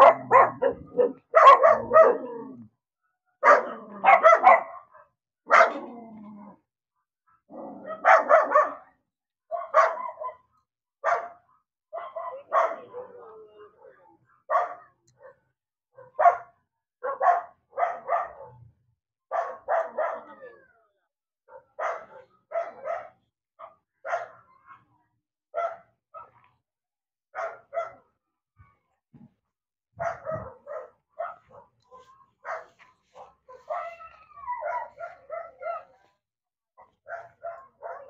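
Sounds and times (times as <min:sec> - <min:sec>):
dog barking: 0:00.0 - 0:02.4, 0:03.4 - 0:05.9, 0:07.6 - 0:18.7, 0:19.3 - 0:20.4, 0:21.5 - 0:24.8, 0:25.5 - 0:26.4, 0:27.3 - 0:28.1, 0:30.0 - 0:36.1, 0:36.8 - 0:38.0.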